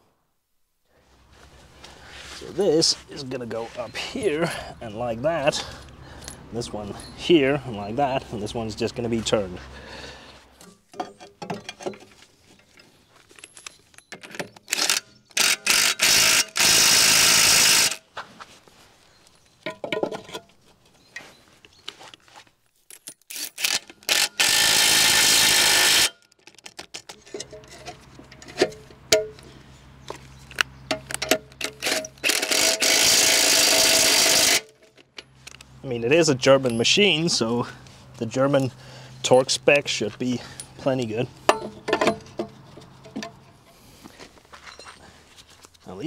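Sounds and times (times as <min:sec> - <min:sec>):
metal parts clinking: 0:05.4 - 0:08.4, 0:10.6 - 0:17.0, 0:19.3 - 0:29.5, 0:30.4 - 0:35.8.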